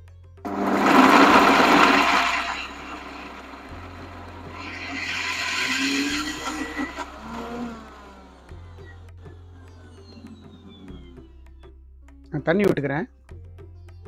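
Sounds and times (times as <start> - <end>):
mixer grinder running: 0.5 - 9.0.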